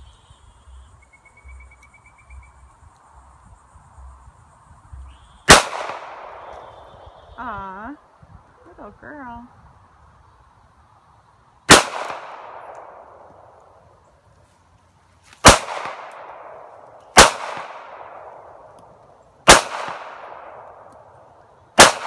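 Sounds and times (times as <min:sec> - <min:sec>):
pistol shots echoing: 0:05.5 - 0:06.8, 0:11.7 - 0:13.6, 0:15.4 - 0:18.7, 0:19.4 - 0:20.9, 0:21.8 - 0:22.0.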